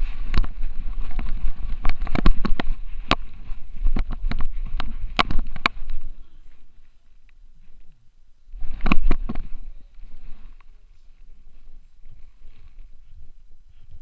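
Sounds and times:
camera handling noise: 0:00.2 - 0:06.0.

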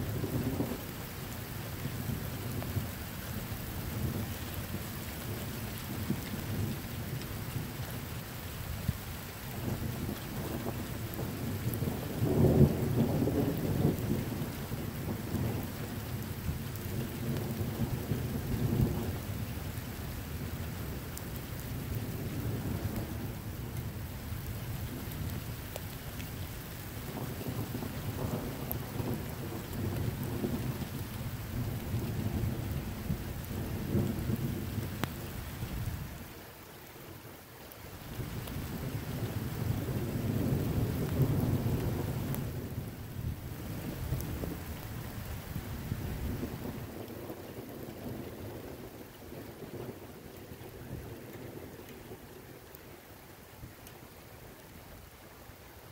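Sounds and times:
rain hissing: 0:00.0 - 0:55.9
thunder rumbling: 0:09.6 - 0:19.5, 0:26.6 - 0:36.2, 0:38.1 - 0:52.7.

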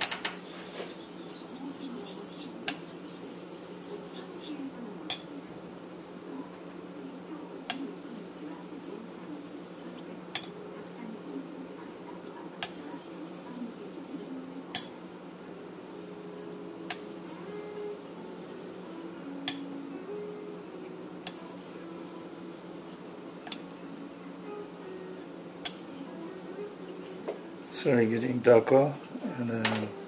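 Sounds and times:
stone grinding on whetstone: 0:00.3 - 0:04.6, 0:16.9 - 0:19.1, 0:21.3 - 0:23.0.

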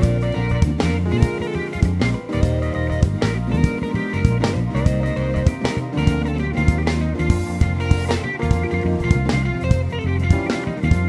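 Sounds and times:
drum kit beat: 0:00.0 - 0:11.0
electric guitar playing: 0:00.0 - 0:11.0.

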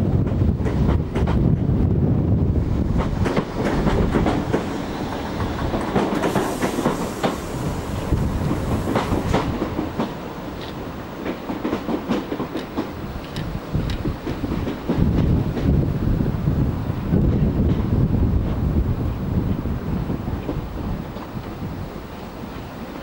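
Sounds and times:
wind buffeting microphone: 0:00.0 - 0:23.0
train wheels clicking over rail joints: 0:00.2 - 0:01.6, 0:02.8 - 0:15.9, 0:17.2 - 0:18.7.

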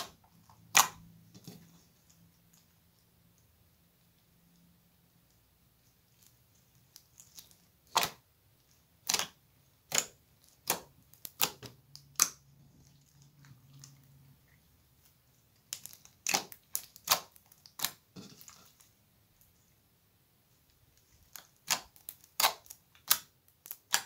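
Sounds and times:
slime crackling pops: 0:00.0 - 0:01.0, 0:15.7 - 0:18.0, 0:21.3 - 0:24.0
slime squishing: 0:00.0 - 0:04.4, 0:05.1 - 0:19.8, 0:20.5 - 0:24.0.

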